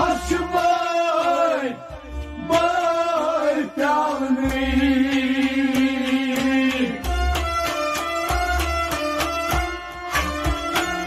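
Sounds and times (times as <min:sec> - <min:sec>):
man singing: 0:00.0 - 0:07.4
drum beats: 0:00.0 - 0:11.0
harmonium: 0:00.0 - 0:11.0.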